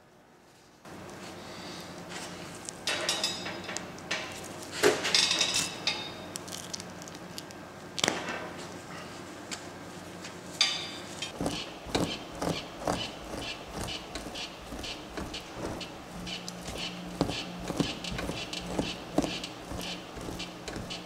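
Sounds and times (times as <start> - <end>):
steady low hum: 11.1 - 21.0.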